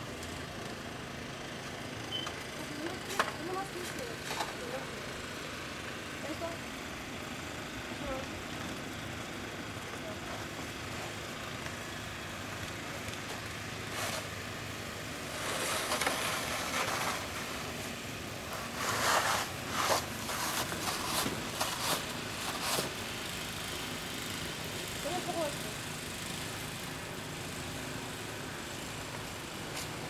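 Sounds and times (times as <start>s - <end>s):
snow shovel scraping: 13.8s - 14.4s, 15.2s - 23.0s.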